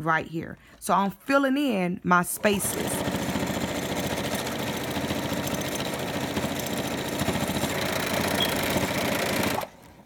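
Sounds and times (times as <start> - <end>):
electric sewing machine running: 2.4 - 10.0.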